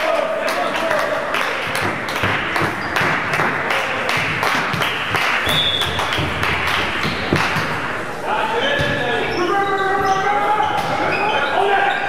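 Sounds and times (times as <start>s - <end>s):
hand clapping and applause: 0.0s - 7.8s.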